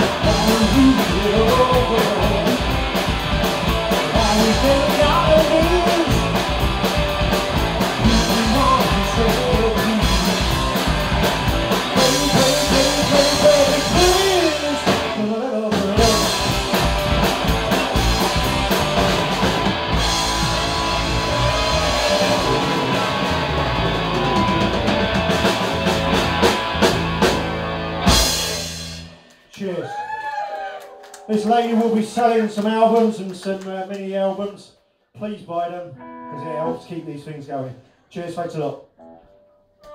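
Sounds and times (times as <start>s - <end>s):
live rock band playing: 0.0s - 29.4s.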